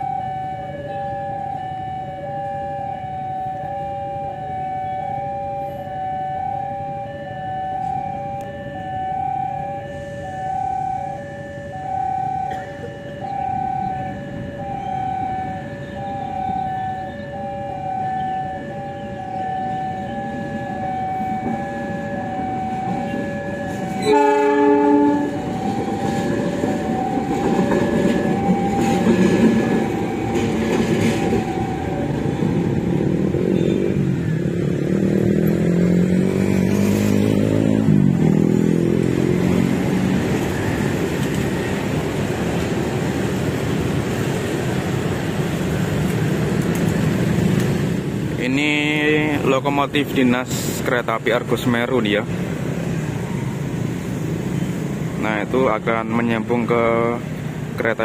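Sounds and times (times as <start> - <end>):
level crossing warning bell: 0.0 - 34.4
diesel locomotive engine passing: 7.3 - 58.0
locomotive horn blast: 23.0 - 26.3.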